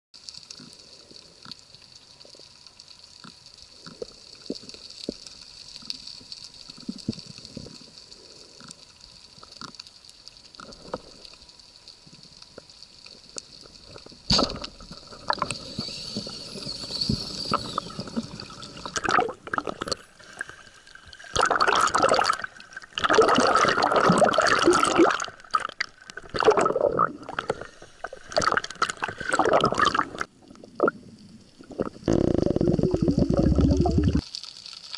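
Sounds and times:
faint underwater clicks and crackle: 0:00.2 - 0:34.9
water gurgling and splashing: 0:13.6 - 0:34.3.

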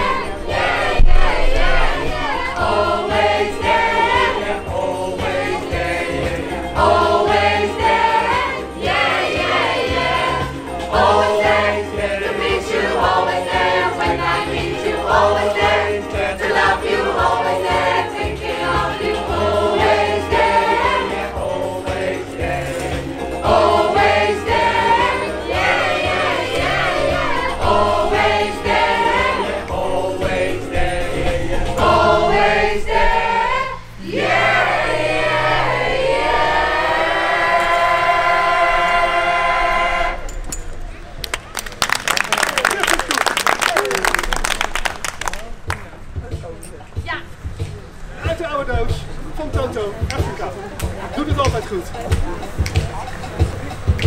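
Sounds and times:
choir singing: 0:00.0 - 0:40.5.

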